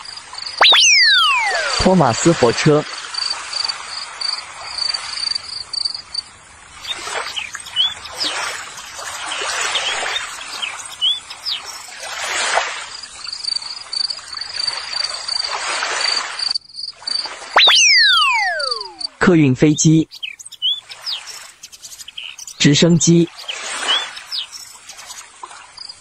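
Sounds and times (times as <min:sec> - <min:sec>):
bird chirps: 0:00.0 - 0:02.1, 0:06.8 - 0:12.0, 0:17.6 - 0:25.2
cricket trilling: 0:00.0 - 0:19.2, 0:20.0 - 0:26.0.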